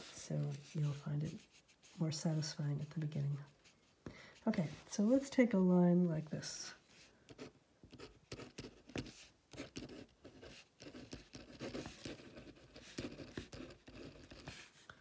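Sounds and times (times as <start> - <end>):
pen scratching on paper: 0.0 - 3.7, 7.3 - 14.8.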